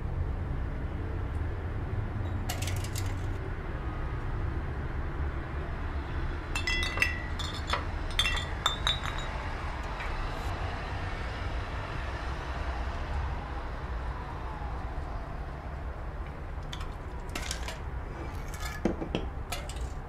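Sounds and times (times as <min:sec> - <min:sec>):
glassy clinks: 0:06.6 - 0:09.4.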